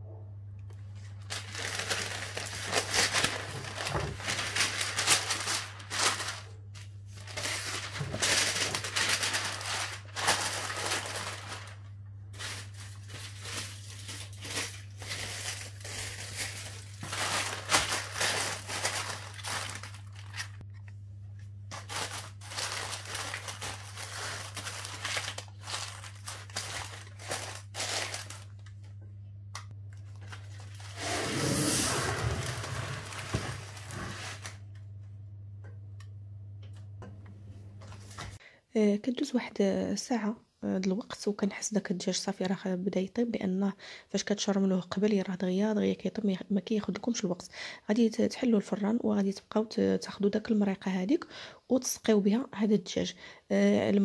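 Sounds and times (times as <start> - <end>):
paper and foil crinkling: 0.8 - 20.9, 21.7 - 28.9, 30.1 - 34.7, 37.9 - 38.4.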